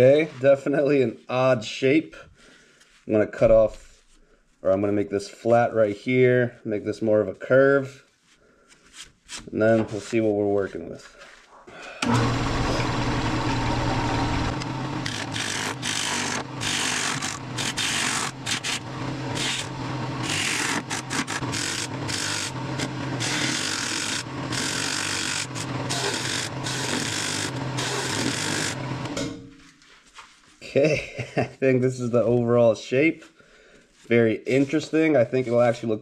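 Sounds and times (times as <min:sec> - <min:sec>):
lathe motor hum: 0:12.0 - 0:29.2
turning tool cutting hiss: 0:13.7 - 0:28.8.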